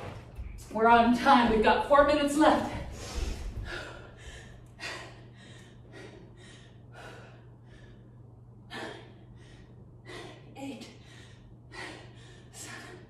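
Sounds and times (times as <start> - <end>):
woman breathing hard: 2.8 - 13.0.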